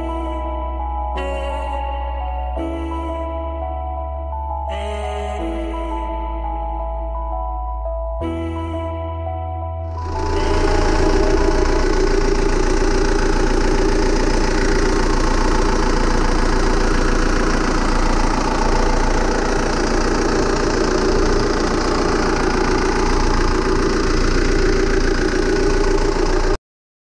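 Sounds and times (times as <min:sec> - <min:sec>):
diesel engine idling: 0:09.9 - 0:26.6.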